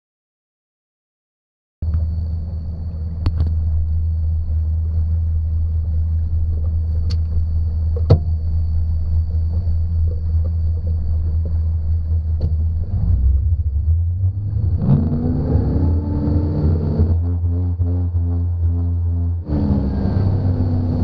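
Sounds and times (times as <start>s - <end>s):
outboard motor idling: 1.8s - 14.5s.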